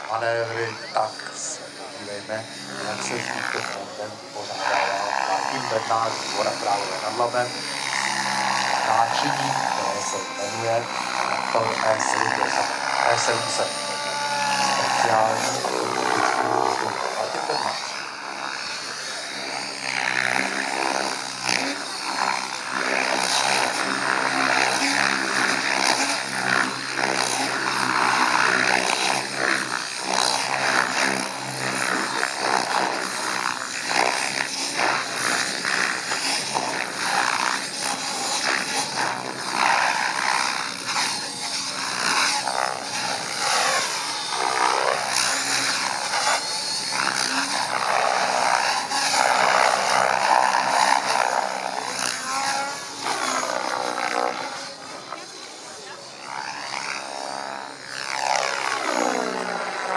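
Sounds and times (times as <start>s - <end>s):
electric motor whine: 0.0s - 59.9s
helicopter rotor blades whooshing: 0.0s - 59.9s.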